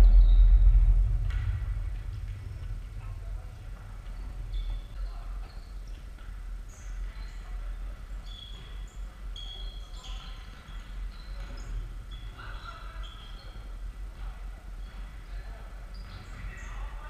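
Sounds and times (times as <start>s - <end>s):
steady low hum: 0.0s - 8.2s
sneakers squeaking on wooden floor: 3.8s - 7.5s, 8.2s - 13.8s, 14.8s - 16.9s.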